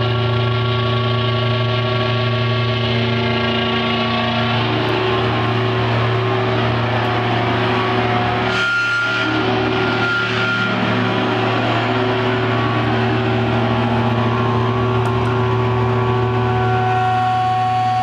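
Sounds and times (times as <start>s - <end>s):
electric guitar feedback: 0.0s - 18.0s.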